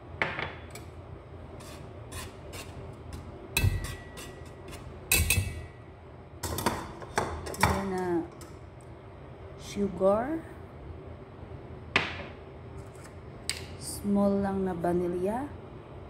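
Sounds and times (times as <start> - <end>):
whisk scraping in metal bowl: 1.6 - 5.4.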